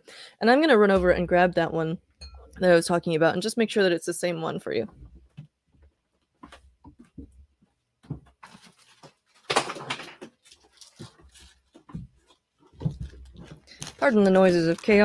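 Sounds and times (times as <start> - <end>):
knocks and clicks of rummaging: 4.9 - 13.9
clatter of things falling: 8.5 - 11.2.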